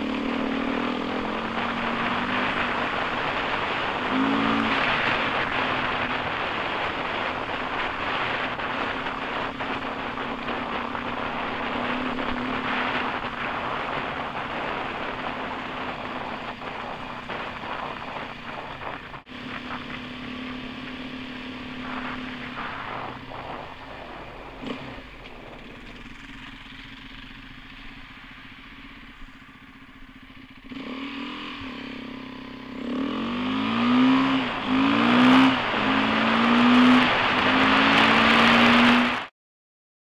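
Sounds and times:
motorcycle engine running: 0.0s - 39.3s
wind and tyre noise: 0.0s - 39.3s.

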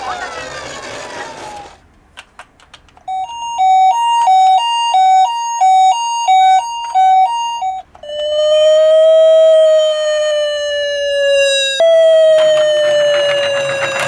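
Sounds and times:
two-tone toy ambulance siren: 3.1s - 14.0s.

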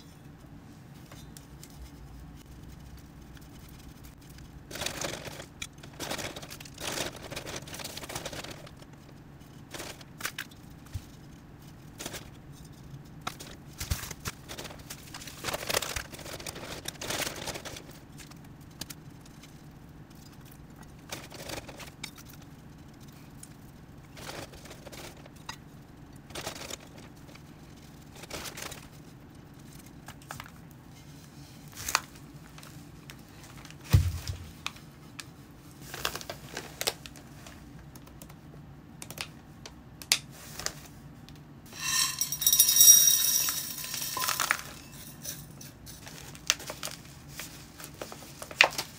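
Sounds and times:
plastic bag and newspaper rustling: 4.6s - 10.2s, 13.4s - 18.0s, 31.4s - 37.7s, 43.9s - 48.9s.

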